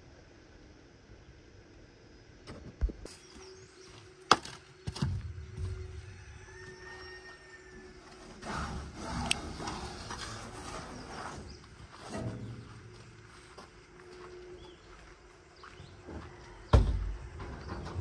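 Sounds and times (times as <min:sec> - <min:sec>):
strap rustling and scraping: 0:08.0 - 0:12.8
knocks and clatter on trailer: 0:16.7 - 0:18.0.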